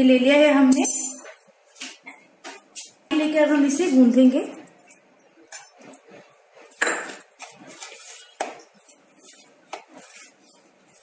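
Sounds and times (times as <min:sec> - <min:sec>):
hands rustling while mixing: 0:04.7 - 0:11.0
dishes clinking against bowl: 0:06.8 - 0:07.3.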